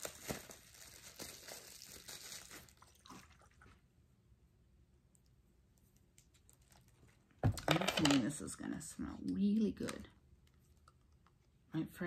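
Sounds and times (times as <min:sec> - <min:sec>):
plastic wrapping crinkling: 0:00.0 - 0:03.5.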